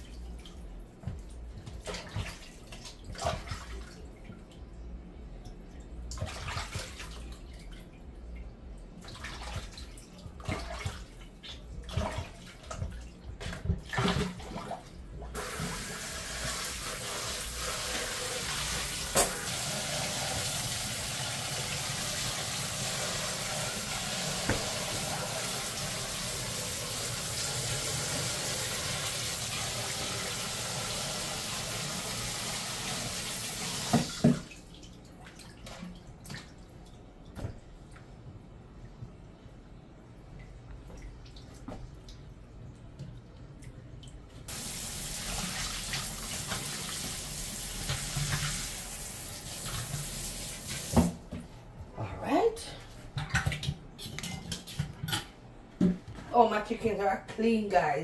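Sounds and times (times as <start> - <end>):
tap water running into sink: 15.4 - 34.6, 44.5 - 51.4
water splashes and knocks in bowl: 53.1 - 56.3.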